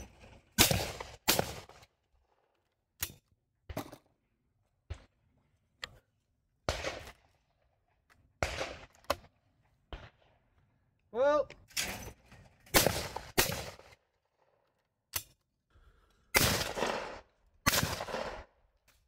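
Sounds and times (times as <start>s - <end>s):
sharp gunshots: 0.6s - 1.8s, 6.7s - 7.1s, 8.4s - 8.9s, 12.7s - 13.9s, 16.4s - 18.5s.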